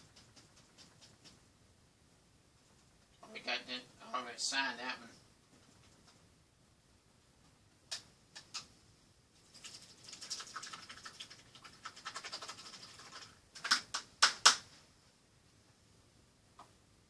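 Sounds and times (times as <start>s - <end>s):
sharp clacks: 0.0s - 1.4s, 11.7s - 14.7s.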